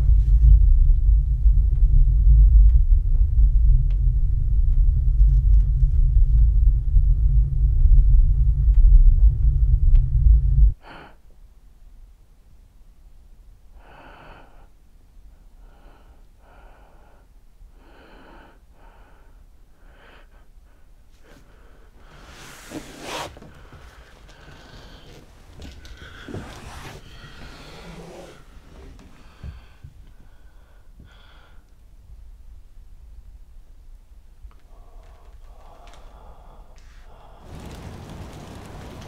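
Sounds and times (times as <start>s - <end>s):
deep low rumble: 0.0s - 10.8s, 34.5s - 39.0s
man breathing and gasping: 23.4s - 31.7s, 34.6s - 37.8s.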